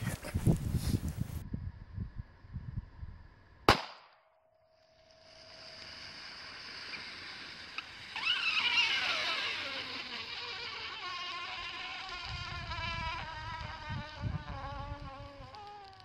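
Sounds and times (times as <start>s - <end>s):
pistol shot: 3.7s - 4.3s
battery hissing and sputtering: 5.2s - 16.0s.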